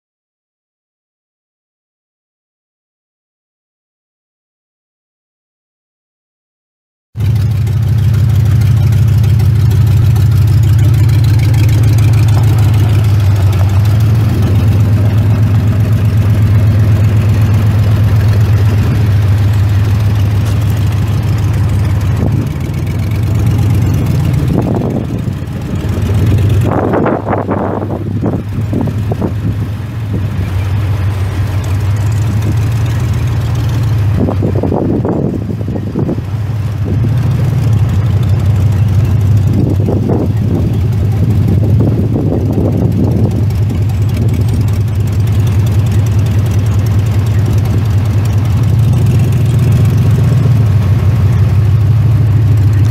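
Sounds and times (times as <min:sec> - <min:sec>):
car engine idling loud: 0:07.2 - 0:52.9
irregular rushing noise: 0:07.3 - 0:52.9.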